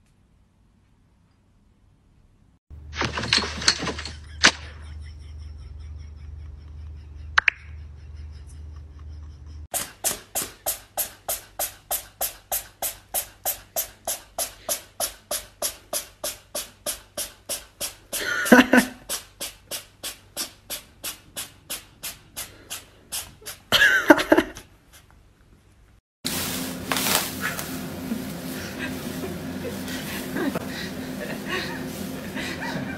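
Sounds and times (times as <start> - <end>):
beatbox percussive hits: 9.8 - 18.4, 19.0 - 23.5.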